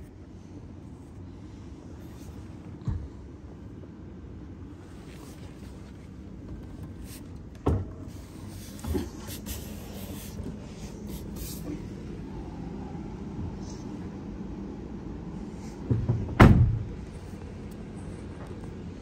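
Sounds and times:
low rumble inside truck cab: 0.0 - 19.0
dull knocks: 15.8 - 17.0.

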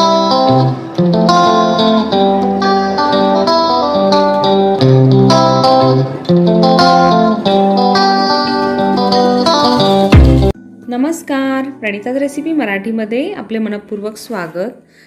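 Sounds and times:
plucked guitar-like notes: 0.0 - 13.0
bass notes: 8.8 - 10.6.

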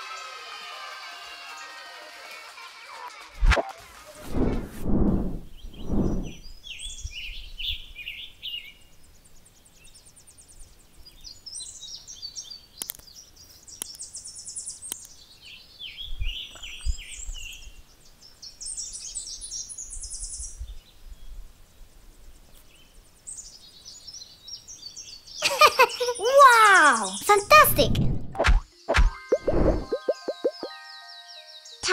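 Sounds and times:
bird singing trills: 5.5 - 21.3, 28.7 - 31.8.

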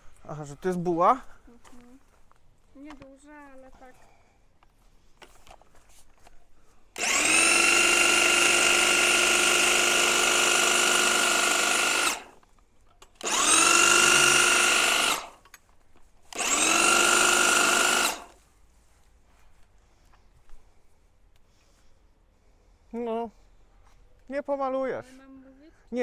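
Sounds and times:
electric hedge trimmer whining: 7.0 - 12.4, 13.1 - 15.5, 16.3 - 18.4.

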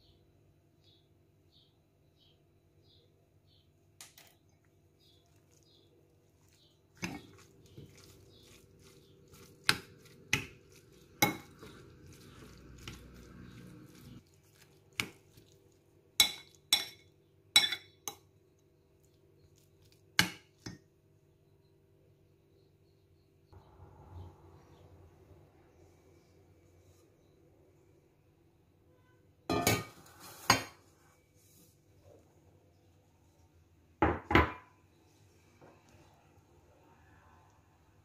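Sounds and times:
soft wet rustle of stuffing: 4.4 - 16.1, 30.0 - 33.6
metal spoon clinking on glass bowl: 16.2 - 18.2.

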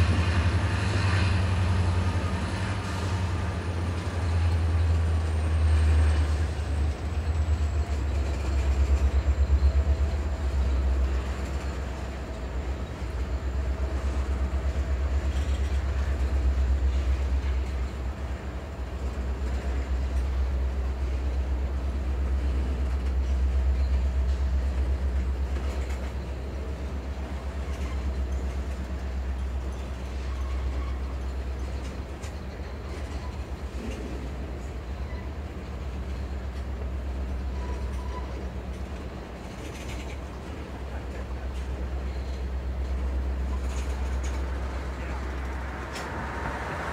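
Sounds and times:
freight train rumbling past: 0.0 - 46.9
wheels clattering over rails: 22.4 - 46.9.

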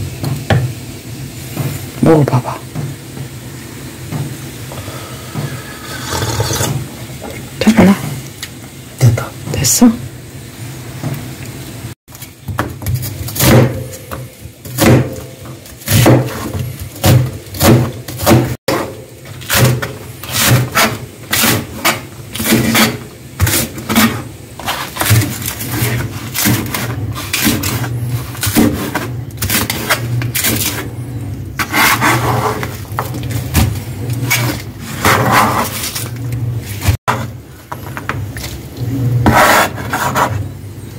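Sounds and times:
knife chopping on plastic board: 12.5 - 15.3, 15.9 - 18.8.

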